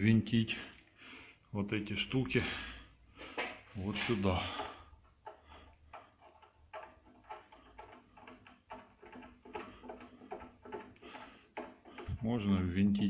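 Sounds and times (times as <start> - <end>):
light clicks and ticks: 3.4 - 12.4.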